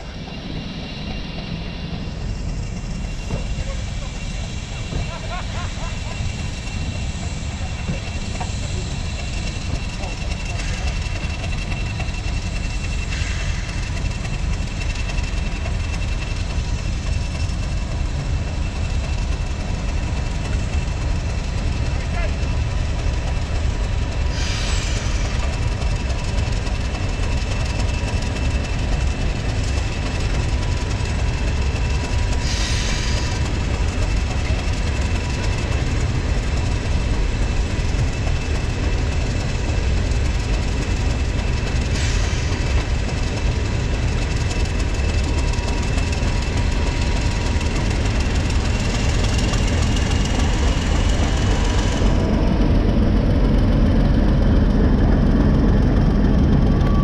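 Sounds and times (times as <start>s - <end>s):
diesel locomotive engine rumble: 0.0s - 57.0s
air hisses: 24.3s - 25.4s, 32.4s - 33.6s, 41.9s - 42.7s.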